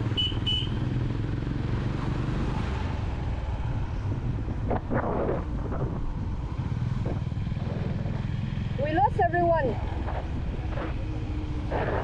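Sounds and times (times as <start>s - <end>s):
wind buffeting microphone: 3.1s - 12.0s.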